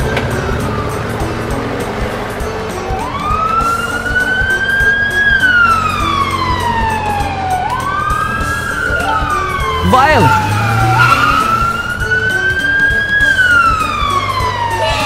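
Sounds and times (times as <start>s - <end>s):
background music with steady beat: 0.0s - 15.0s
siren-like wailing: 5.5s - 15.0s.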